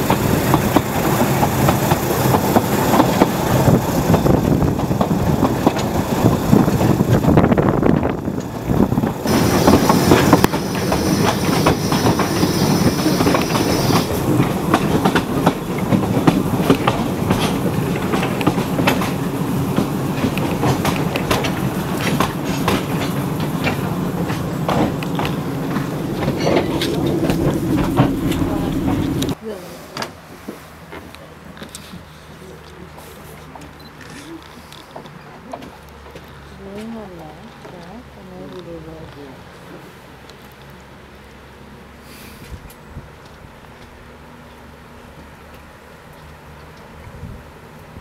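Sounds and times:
train wheels rumbling and clicking: 0.0s - 29.4s, 30.0s - 48.0s
high steady squeal: 9.2s - 14.4s.

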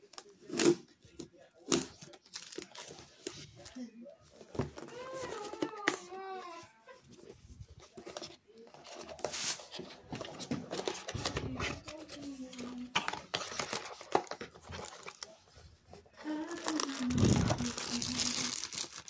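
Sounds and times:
plastic wrap crinkling: 16.2s - 19.0s.

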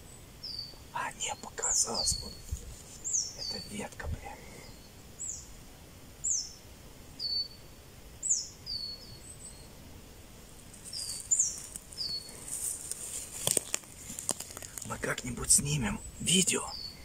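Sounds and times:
small bird calling: 0.0s - 5.6s, 6.2s - 9.7s, 10.8s - 13.0s, 14.1s - 17.0s.

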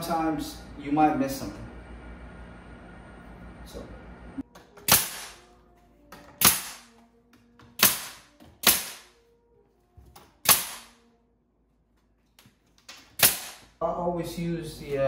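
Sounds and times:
nail gun firing into wood: 4.8s - 5.4s, 6.4s - 6.9s, 7.8s - 9.1s, 10.4s - 11.0s, 13.2s - 13.7s.

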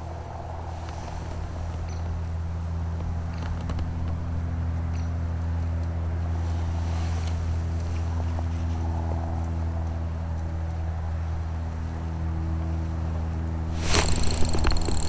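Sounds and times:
motor humming: 13.6s - 15.0s
faint clicks: 13.8s - 15.0s.

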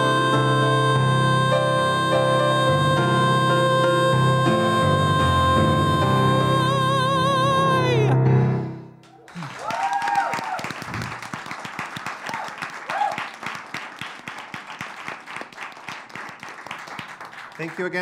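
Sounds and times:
man singing with vibrato: 0.0s - 8.3s
keyboard accompaniment: 0.0s - 9.0s
audience applause: 9.0s - 18.0s
audience whoops: 9.1s - 13.6s.

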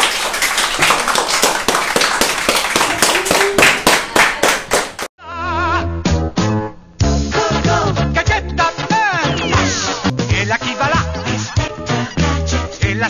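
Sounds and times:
people clapping: 0.0s - 5.1s
upbeat music: 7.0s - 13.0s.

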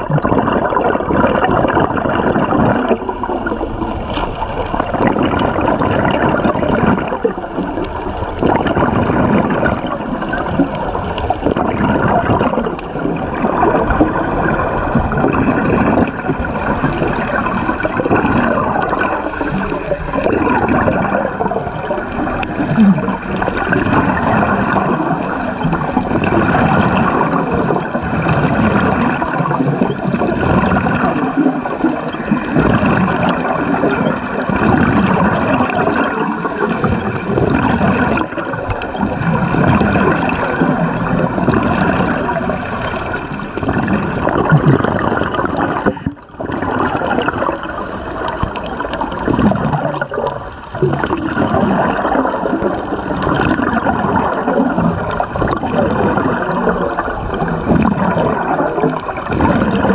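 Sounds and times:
divers exhaling bubbles: 0.0s - 59.9s
underwater bubbling water: 0.0s - 59.9s.

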